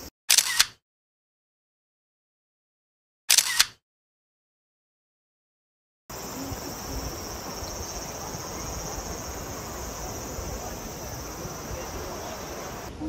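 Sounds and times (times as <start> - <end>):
cicadas chorus: 6.1 - 13.0
river water over rapids: 6.2 - 13.0.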